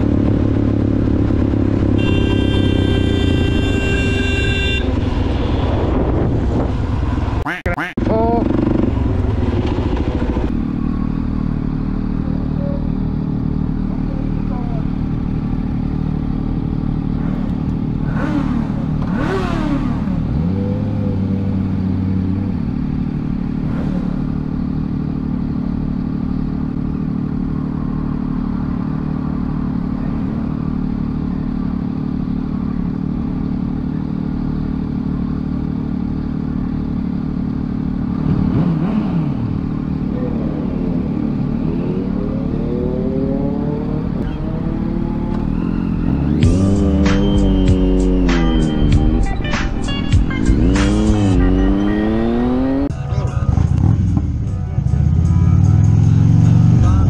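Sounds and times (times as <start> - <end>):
motorcycle engine revving: 0.0 - 52.9, 53.5 - 57.0
motorcycle engines idling: 8.1 - 42.8.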